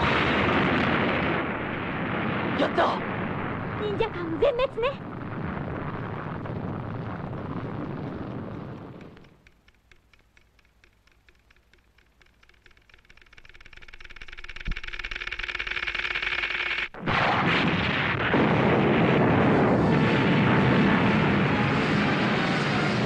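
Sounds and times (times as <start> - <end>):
loud explosion: 0.0 - 9.2, 17.0 - 23.0
cartoon time bomb ticking: 7.7 - 17.0.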